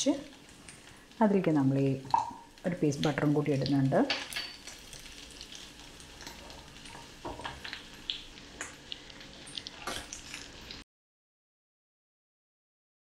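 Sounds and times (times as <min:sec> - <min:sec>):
butter sizzling in a wok: 0:00.0 - 0:10.8.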